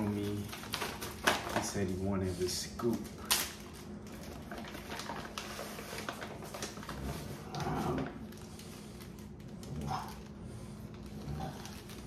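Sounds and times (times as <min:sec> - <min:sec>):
plastic packaging rustling: 0:00.0 - 0:12.0.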